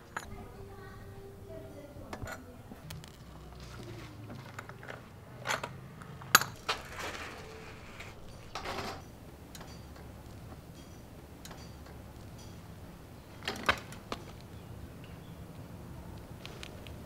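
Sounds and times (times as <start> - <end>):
metal tool and nuts clinking: 0.0 - 0.4, 4.6 - 7.1, 8.2 - 12.7.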